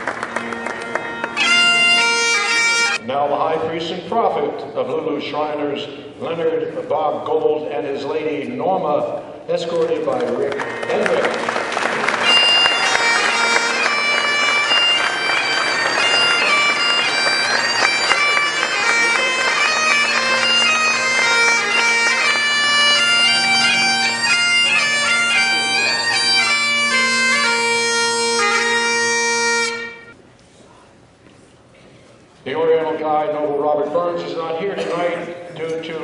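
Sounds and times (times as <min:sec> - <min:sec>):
bagpipes playing a march: 0:00.0 - 0:03.0, 0:10.2 - 0:30.2.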